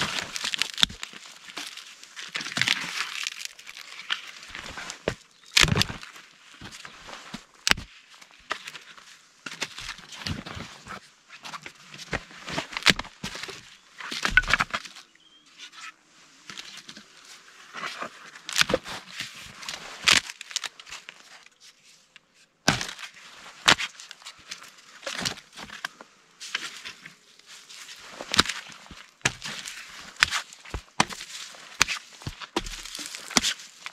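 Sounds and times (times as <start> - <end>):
dry sticks cracking: 0.0 - 6.9, 28.2 - 33.9.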